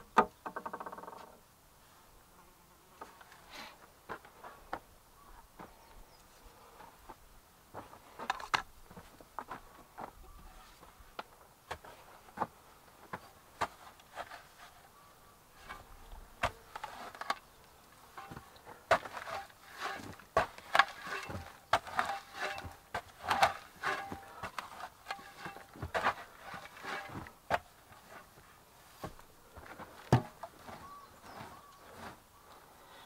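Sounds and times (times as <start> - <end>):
shovel scraping dirt: 13.6 - 14.8, 15.6 - 17.5, 18.1 - 29.2.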